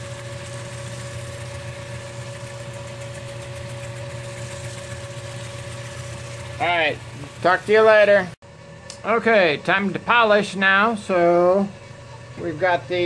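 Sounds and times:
running water: 0.0s - 8.4s
sander motor humming: 0.0s - 8.4s.

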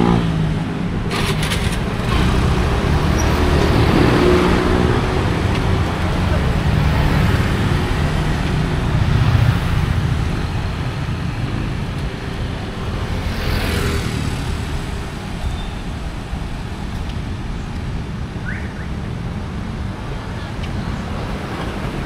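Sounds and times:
traffic engine rumble: 0.0s - 22.0s
passing vehicle whoosh: 1.1s - 16.8s.

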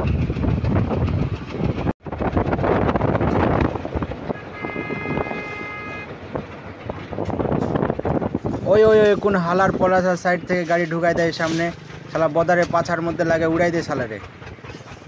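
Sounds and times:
single-cylinder diesel engine running: 0.0s - 15.0s
vehicle horn: 4.2s - 6.1s.

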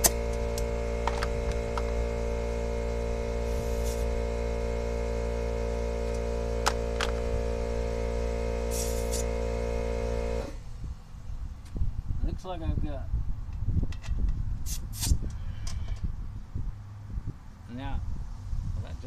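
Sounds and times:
air compressor motor humming: 0.0s - 10.8s
air hissing: 1.6s - 4.5s, 8.6s - 9.6s, 14.6s - 15.6s.

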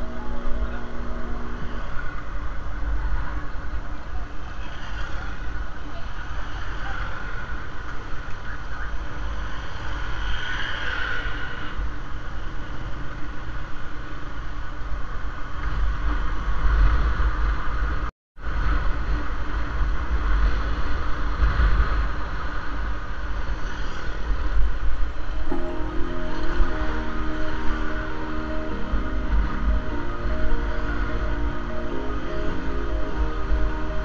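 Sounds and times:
wind rumble on microphone: 0.0s - 25.6s.

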